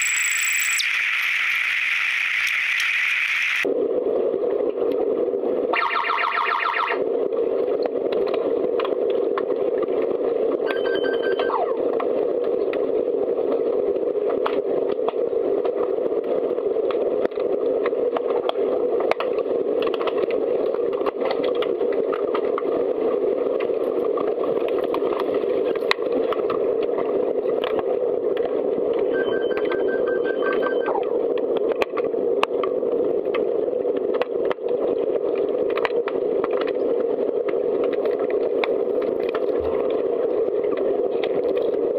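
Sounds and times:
short pulsed electronic beep: 0:00.0 - 0:03.6, 0:10.7 - 0:11.8, 0:29.1 - 0:31.0.

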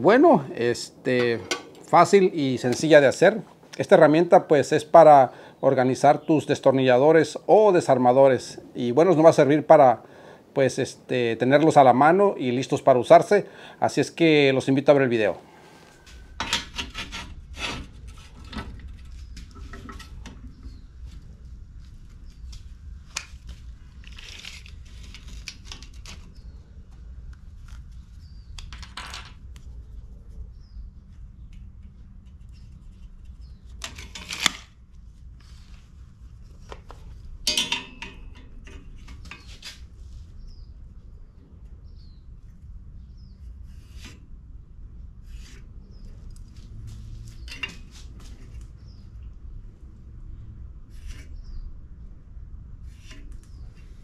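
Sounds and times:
metal clinks and knocks: 0:37.4 - 0:39.5
metal clattering: 0:37.4 - 0:39.6.

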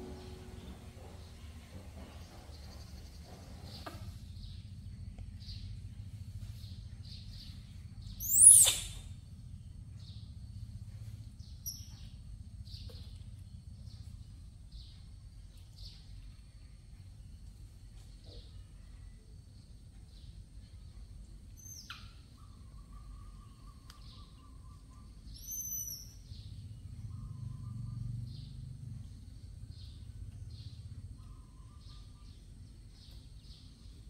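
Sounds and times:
low steady hum: 0:00.0 - 0:34.0
faint short chirps: 0:08.2 - 0:09.1
shrill animal call: 0:08.2 - 0:09.1, 0:24.5 - 0:26.3.

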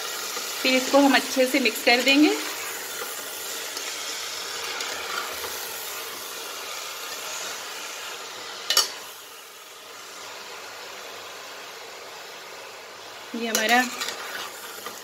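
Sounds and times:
food sizzling in a pot: 0:00.0 - 0:15.0
metal spoon stirring: 0:13.5 - 0:15.0.

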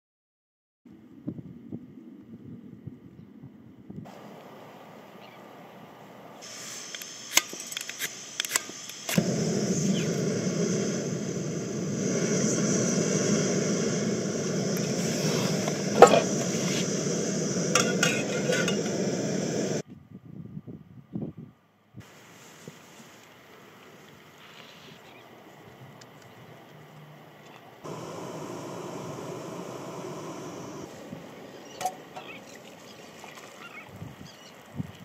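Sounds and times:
gas stove burner hissing: 0:06.4 - 0:19.8, 0:27.8 - 0:32.4.

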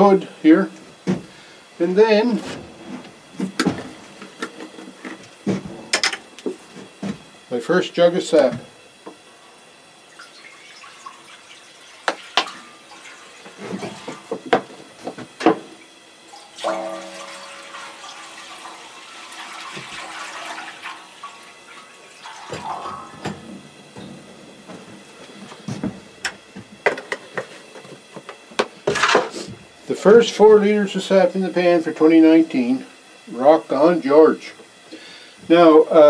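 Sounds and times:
liquid splashing into metal pan: 0:16.3 - 0:23.5.

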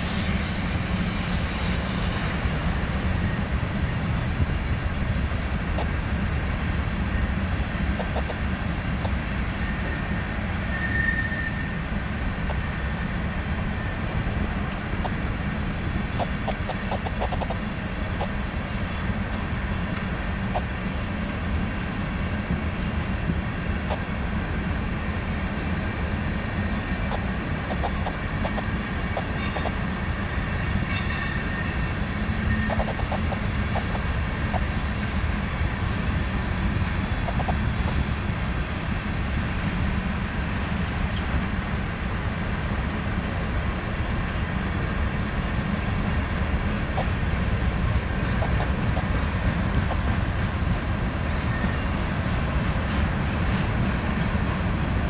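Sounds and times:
freight train wheels rumbling: 0:00.0 - 0:55.0
faint wheel squeal: 0:09.6 - 0:11.8.

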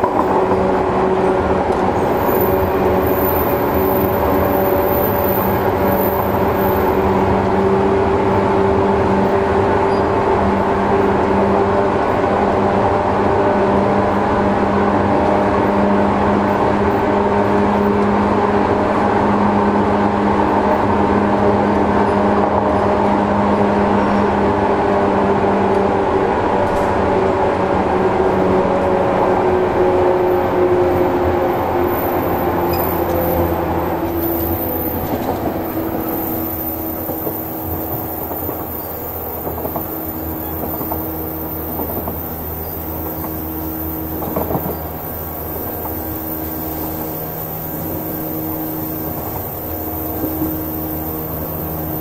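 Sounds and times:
train wheel and rail noise: 0:00.0 - 0:52.0
traction motors whining: 0:26.6 - 0:52.0.

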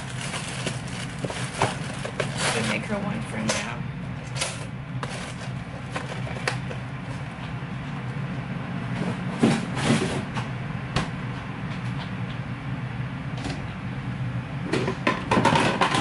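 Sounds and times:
steady low hum: 0:00.0 - 0:16.0
kitchen clatter: 0:14.8 - 0:16.0.

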